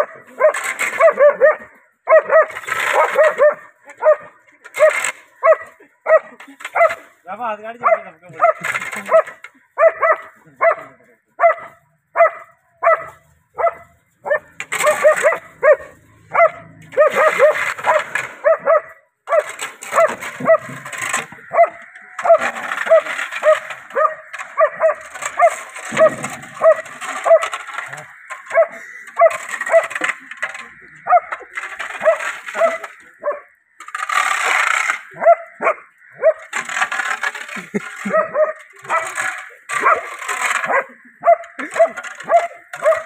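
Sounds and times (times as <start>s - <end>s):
dog barking agitatedly: 0.0s - 7.0s, 7.8s - 10.8s, 11.4s - 20.8s
rough scuffling noise: 0.0s - 43.0s.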